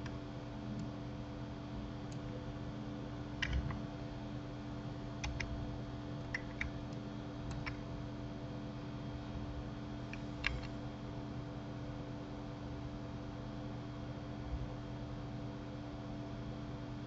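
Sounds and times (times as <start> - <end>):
low electrical hum: 0.0 - 17.0
mouse and keyboard clicks: 3.4 - 3.8, 5.2 - 5.5, 6.2 - 6.8, 7.5 - 7.8, 10.1 - 10.8.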